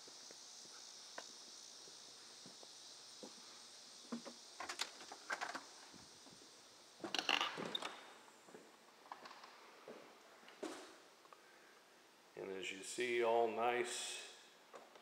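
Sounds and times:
footsteps on wooden porch: 0:00.0 - 0:07.8, 0:08.4 - 0:08.8.

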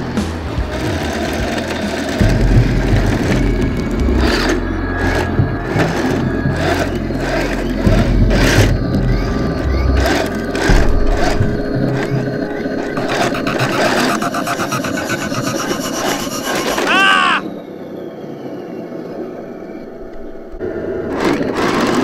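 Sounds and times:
background music: 0:00.0 - 0:16.9
tracks grinding over rocks: 0:00.0 - 0:17.3
electric motors whirring: 0:00.0 - 0:22.0.

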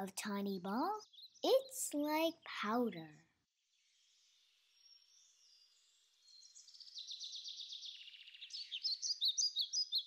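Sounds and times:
songbird trilling and chirping: 0:00.7 - 0:01.9, 0:04.7 - 0:10.0.

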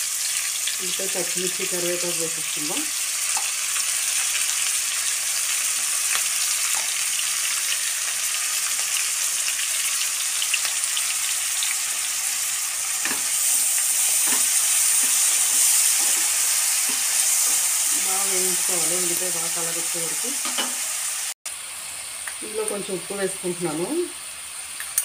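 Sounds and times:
vegetables sizzling in hot oil: 0:00.0 - 0:25.0.

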